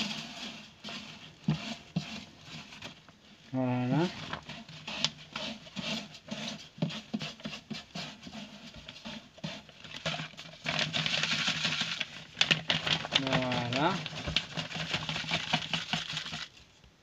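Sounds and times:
grains pattering on glass: 10.8 - 16.5.

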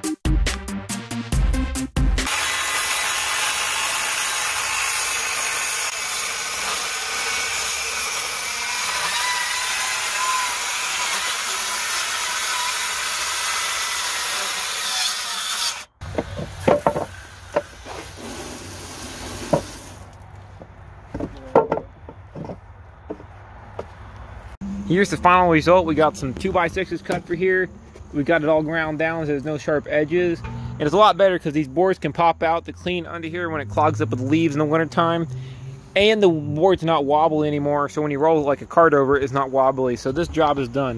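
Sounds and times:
knocks and clatter: 16.1 - 17.7, 21.1 - 23.3.

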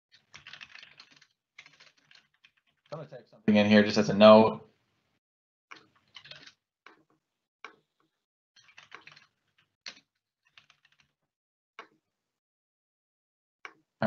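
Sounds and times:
typing on computer keyboard: 0.1 - 3.0, 5.7 - 7.0, 8.6 - 11.2.

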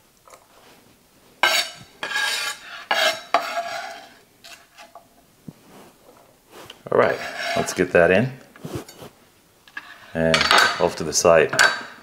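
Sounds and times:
knife scraping cutting board: 1.4 - 4.9, 6.6 - 7.9, 8.6 - 10.2.

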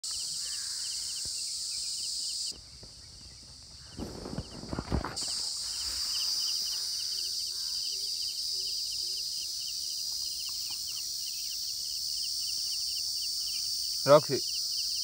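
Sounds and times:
insects droning and chirping: 0.0 - 15.0.

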